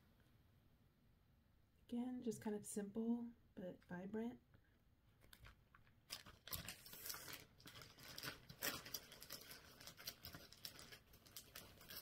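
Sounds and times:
plastic sleeves crinkling: 5.2s - 12.0s.

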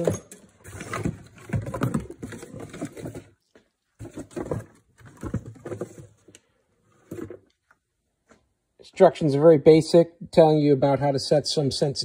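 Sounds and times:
cardboard box being handled: 0.6s - 6.2s.

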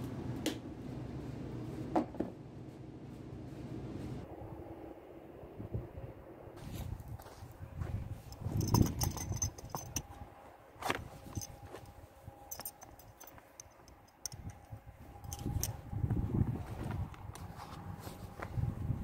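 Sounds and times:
metal buckles clicking and jingling: 8.1s - 10.2s, 11.0s - 15.8s.

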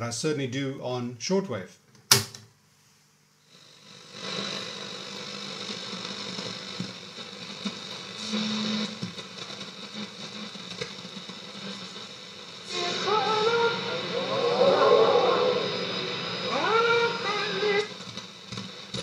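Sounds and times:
shortwave radio static and hiss: 3.4s - 19.0s
low hum: 12.7s - 17.9s.

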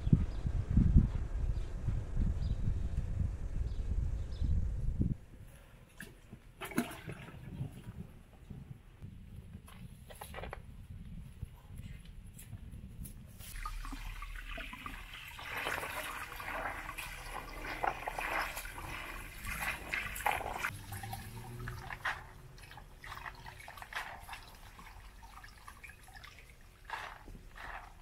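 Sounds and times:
hands splashing in basin of water: 6.0s - 7.6s, 13.4s - 28.0s.

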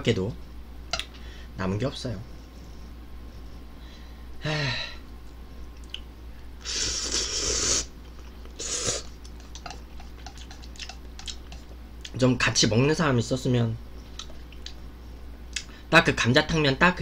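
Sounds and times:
person slurping noodles: 6.6s - 7.9s, 8.6s - 11.3s
chewing clicks: 9.2s - 12.2s, 14.1s - 14.8s.

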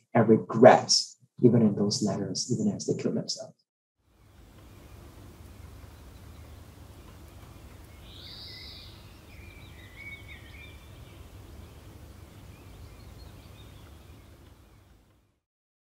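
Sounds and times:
low forest rumble: 4.1s - 15.1s
bird calls: 4.6s - 14.9s
bird warbling trill: 4.7s - 14.4s.

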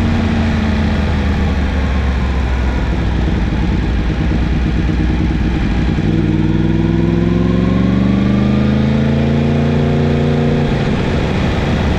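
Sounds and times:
motorcycle engine accelerating: 0.0s - 11.9s.

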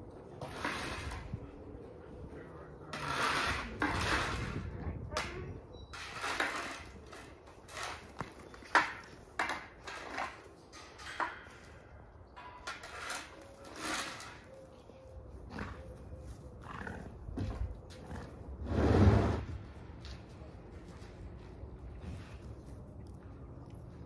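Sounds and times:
scraping and rustling: 5.9s - 11.8s, 12.4s - 14.8s.

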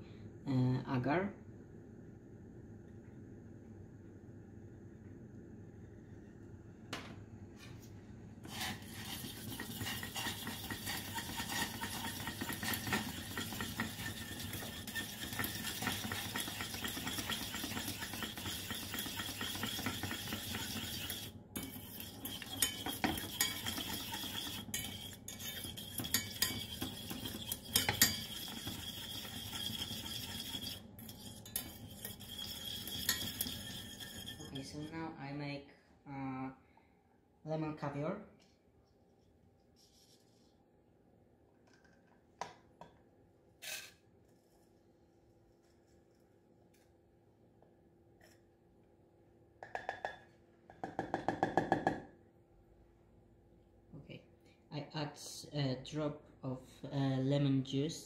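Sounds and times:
whisk rattling in metal saucepan: 8.5s - 35.0s.

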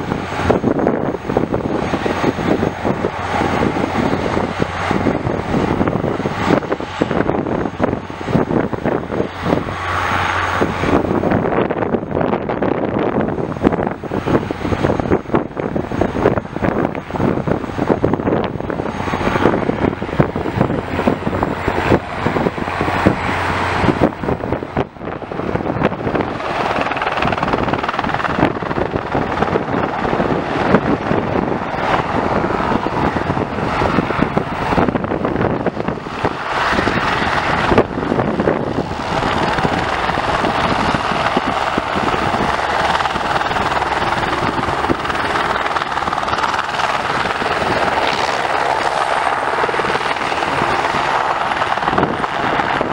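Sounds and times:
helicopter rotor chop: 0.0s - 52.9s
turbine engine whine: 0.0s - 52.9s.

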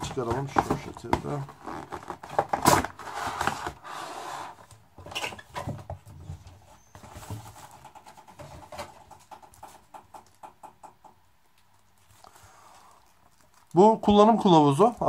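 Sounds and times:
plastic and cardboard rustling: 0.0s - 10.5s, 11.6s - 15.0s.

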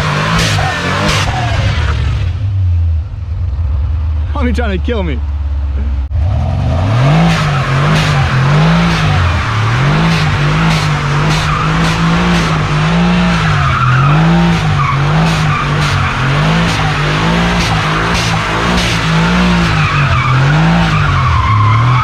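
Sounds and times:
car engine revving: 0.0s - 22.0s
tyres spinning on wet asphalt: 6.2s - 22.0s.

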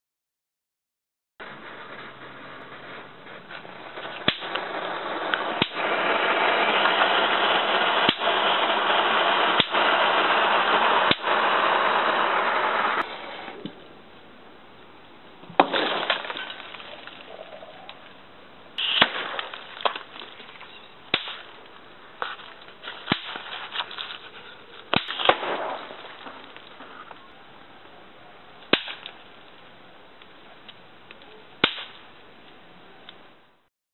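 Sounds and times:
shell blast rumble: 1.4s - 13.2s, 15.4s - 24.1s, 24.9s - 27.2s
gunshot cracks: 3.9s - 6.3s, 15.6s - 17.0s, 18.8s - 20.1s, 21.1s - 21.5s, 24.9s - 26.4s, 28.7s - 29.2s, 31.6s - 32.0s.

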